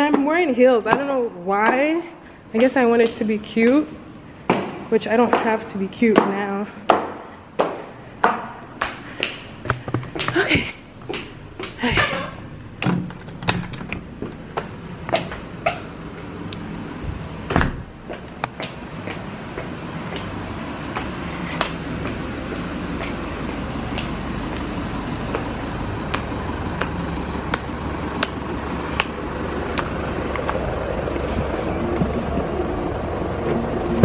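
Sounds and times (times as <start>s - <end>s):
high heels clicking on steps: 0.0s - 3.4s, 4.5s - 12.2s, 18.0s - 30.6s
low rumble: 8.0s - 34.0s.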